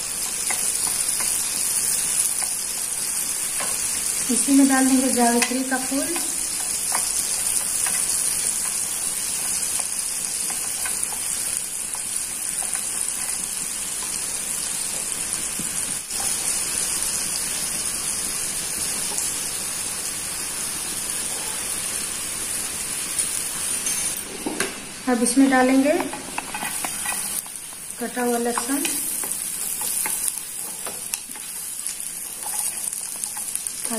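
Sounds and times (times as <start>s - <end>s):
spices sizzling in butter: 0.0s - 33.9s.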